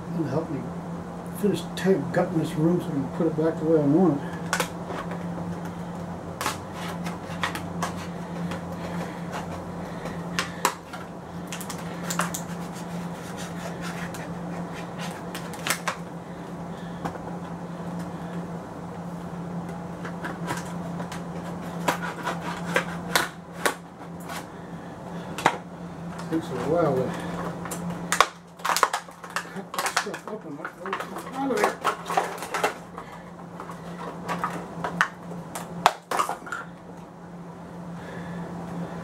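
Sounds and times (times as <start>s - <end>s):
steady low hum: 0.0s - 39.0s
knife cutting cardboard tape: 6.4s - 9.6s, 10.3s - 16.0s, 20.0s - 24.5s
cardboard rustling and scraping: 6.4s - 11.1s, 11.8s - 16.1s, 19.9s - 24.5s, 28.5s - 35.0s.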